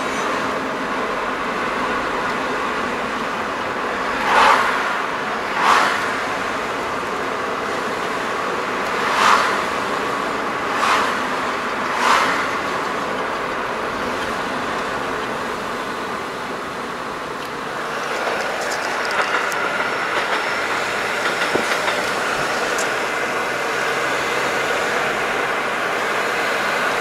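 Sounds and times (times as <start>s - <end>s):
road and tyre noise: 0.0s - 27.0s
brief swishes: 12.0s - 12.5s.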